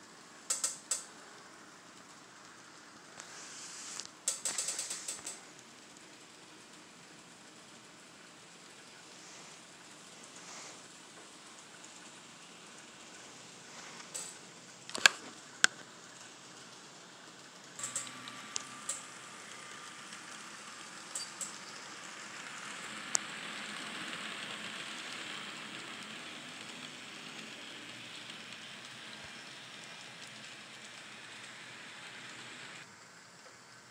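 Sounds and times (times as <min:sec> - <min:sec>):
model trains rattling: 0:00.0 - 0:03.4, 0:04.0 - 0:33.8
sharp clicks: 0:00.5 - 0:01.1.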